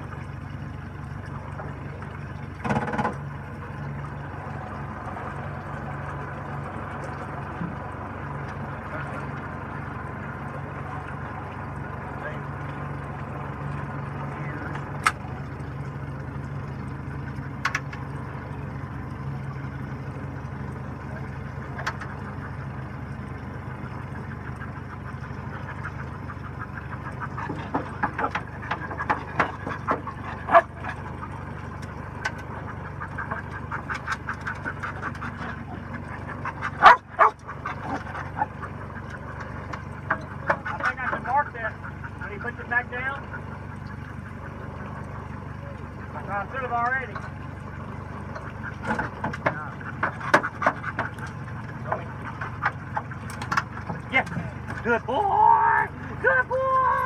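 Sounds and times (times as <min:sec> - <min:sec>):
boat motor running: 0:00.0 - 0:57.0
dog barking: 0:30.5 - 0:30.7, 0:36.8 - 0:37.4.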